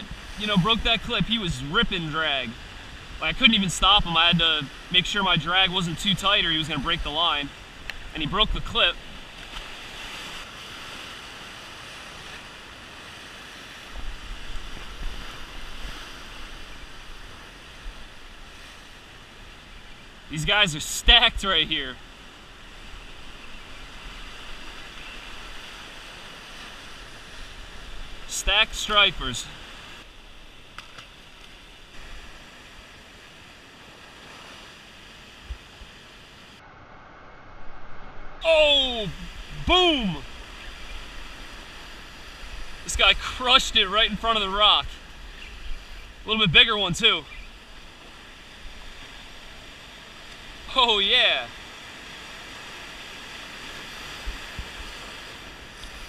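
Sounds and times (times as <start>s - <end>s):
ocean surf breaking on rocks: 0.0s - 36.6s, 38.4s - 56.0s.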